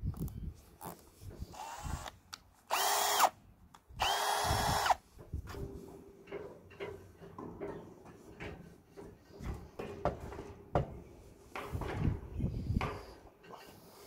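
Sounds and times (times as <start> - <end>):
cordless drill motor whine: 1.5 - 2.1, 2.7 - 3.4, 4.0 - 5.0.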